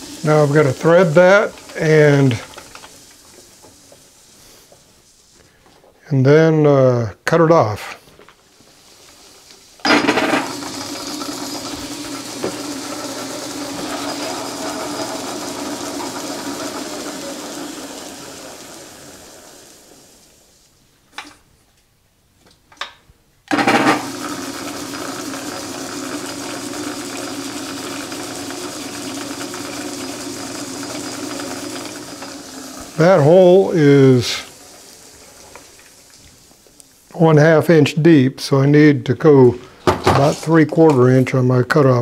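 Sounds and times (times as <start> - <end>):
metal lathe running: 0.0 - 3.4, 9.8 - 20.0, 23.5 - 35.0
drill boring into metal: 0.0 - 3.8, 9.8 - 20.0, 23.5 - 35.7.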